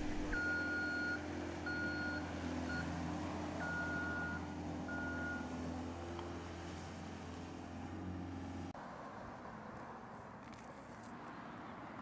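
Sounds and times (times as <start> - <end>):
steady low hum: 0.0 - 0.4.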